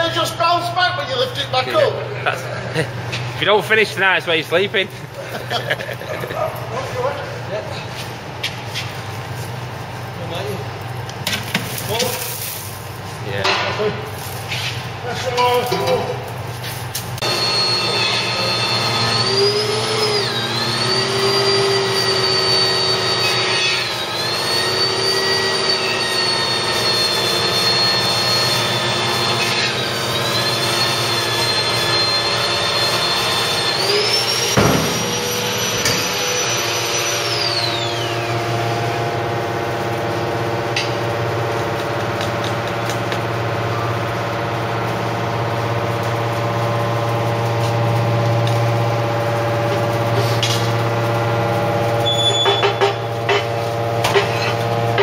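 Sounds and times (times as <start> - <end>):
high whine: 17.0 - 55.0
hydraulic baler motor hum: 17.2 - 55.0.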